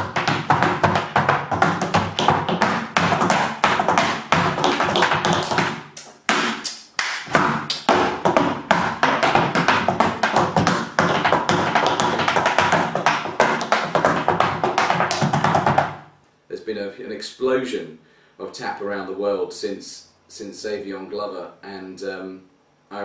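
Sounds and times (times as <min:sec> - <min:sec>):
tap shoes on wooden board: 0:00.0 - 0:16.0.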